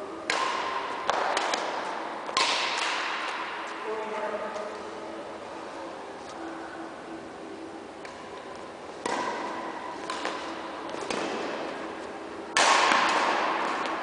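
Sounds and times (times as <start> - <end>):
racket hitting shuttlecock: 0.2 - 3.7, 8.0 - 14.0.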